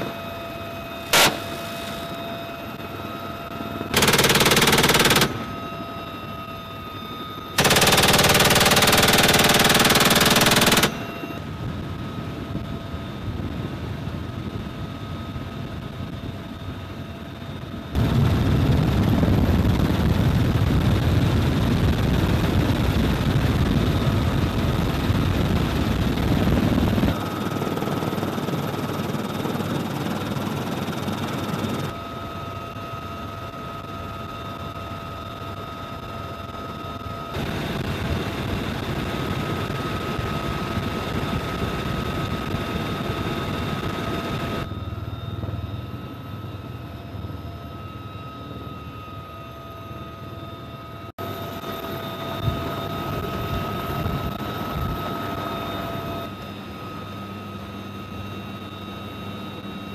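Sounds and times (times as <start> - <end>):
helicopter turbine whine: 0.0 - 59.9
machine gun bursts: 4.0 - 5.5, 7.6 - 11.0
deep continuous rumble: 17.6 - 27.2.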